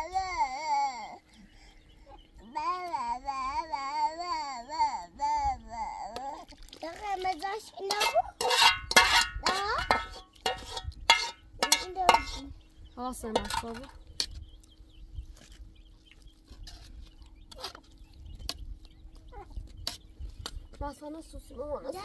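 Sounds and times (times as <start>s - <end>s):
children's voices: 2.1s - 8.4s, 11.6s - 12.6s, 20.8s - 22.0s
metal spoon scraping a pot: 7.8s - 12.5s, 13.3s - 14.4s, 16.5s - 18.6s.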